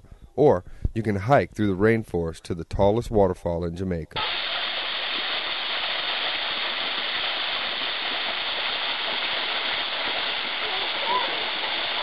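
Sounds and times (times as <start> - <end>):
waterfall splashing into pool: 4.2 - 12.0.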